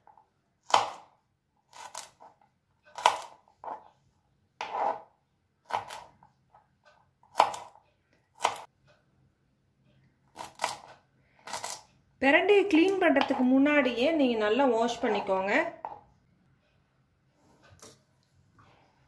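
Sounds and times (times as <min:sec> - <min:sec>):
knife chopping on plastic board: 0:00.6 - 0:01.1, 0:02.9 - 0:03.8, 0:05.6 - 0:06.1, 0:07.2 - 0:07.8, 0:08.4 - 0:08.7.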